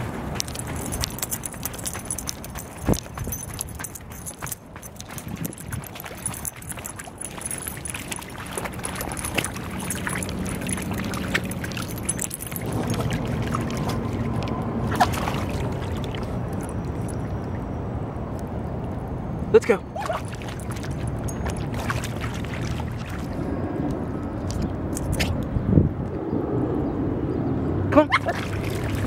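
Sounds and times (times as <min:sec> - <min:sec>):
dog splashing through puddle: 0:00.0 - 0:17.5, 0:20.0 - 0:23.4, 0:28.1 - 0:29.0.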